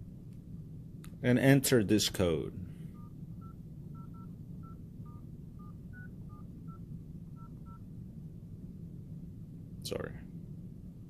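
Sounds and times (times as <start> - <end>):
touch-tone keypad beeps: 3.0 - 6.8.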